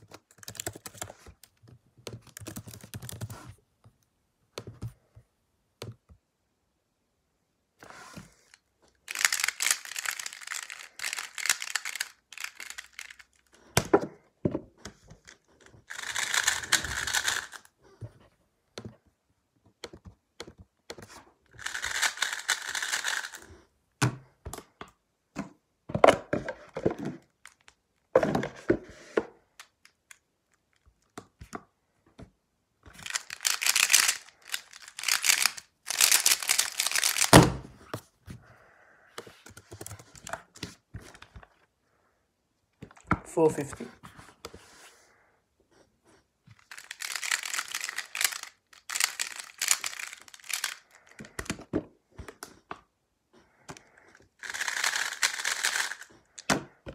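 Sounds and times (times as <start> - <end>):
puzzle clicking and clacking: 33.0 - 37.4, 46.6 - 51.5, 54.4 - 56.5.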